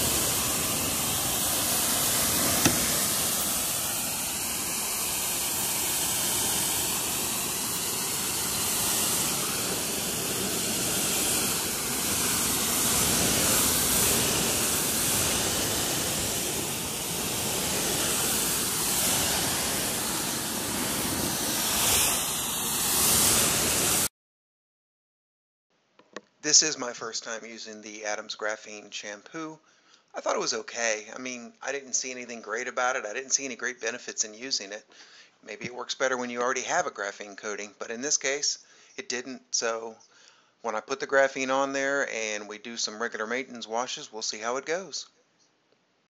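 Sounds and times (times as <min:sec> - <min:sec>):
pressure washer jet hissing: 0:00.0 - 0:24.1.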